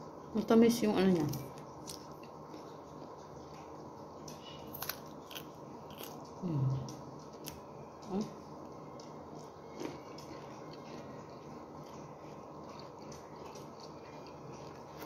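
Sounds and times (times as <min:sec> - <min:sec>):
crunchy chewing of broccoli: 0:01.6 - 0:07.8, 0:08.6 - 0:15.0
person humming: 0:06.4 - 0:07.0.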